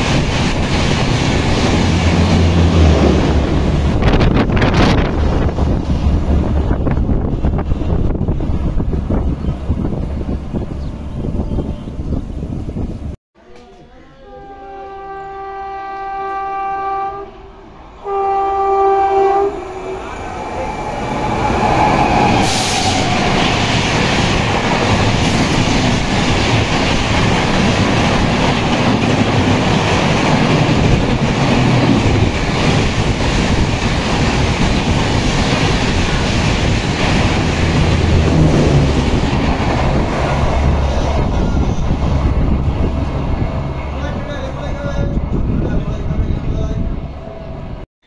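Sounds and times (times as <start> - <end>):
train passing on rails: 0.0 - 13.2, 14.4 - 47.8
train horn: 13.8 - 20.7.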